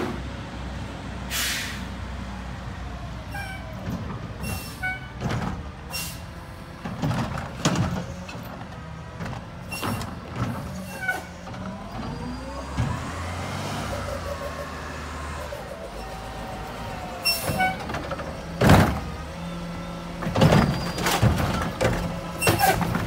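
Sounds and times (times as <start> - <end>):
air brake hisses: 1.3 - 1.9, 5.9 - 6.3
garbage truck engine running low: 2.3 - 23.0
short high squeaks: 13.9 - 17.9.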